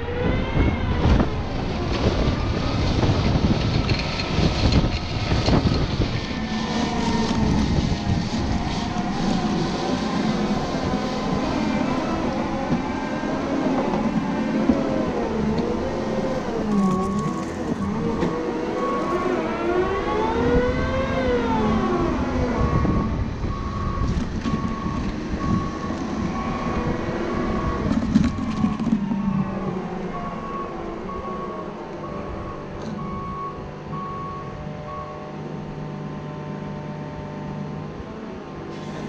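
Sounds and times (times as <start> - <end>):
diesel engine revving: 0.0 - 38.1
reverse alarm beeping: 16.7 - 20.2, 22.6 - 35.3.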